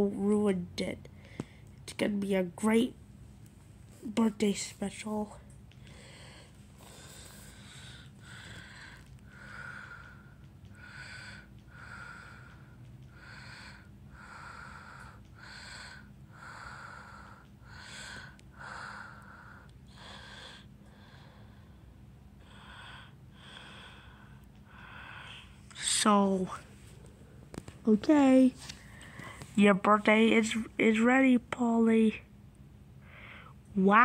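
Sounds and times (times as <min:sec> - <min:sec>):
low steady hum: 0:00.0 - 0:34.0
faint quick breaths: 0:05.7 - 0:25.7, 0:28.6 - 0:29.6, 0:33.0 - 0:33.6.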